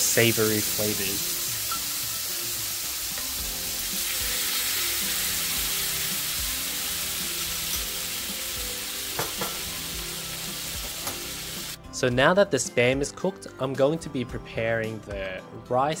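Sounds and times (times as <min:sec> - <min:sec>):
meat sizzling in a pan: 0:00.0 - 0:11.8
soft background music: 0:00.0 - 0:16.0.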